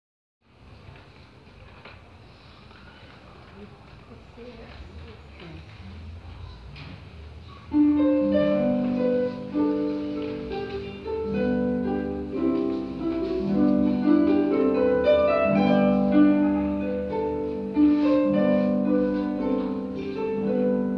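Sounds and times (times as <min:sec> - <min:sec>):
harp playing classical piece: 0:07.7 - 0:20.9.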